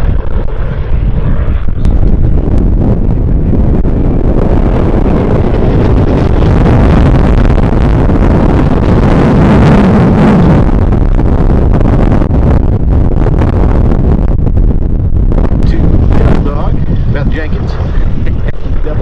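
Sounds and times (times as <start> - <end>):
propeller plane engine drone: 0.0 - 19.0
wind buffeting microphone: 0.0 - 19.0.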